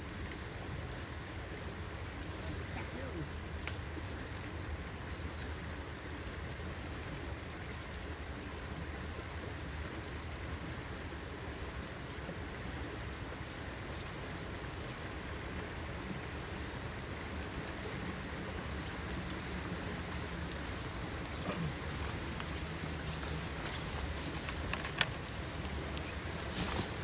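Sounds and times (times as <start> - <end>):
fast-flowing river rushing: 15.1 - 27.0.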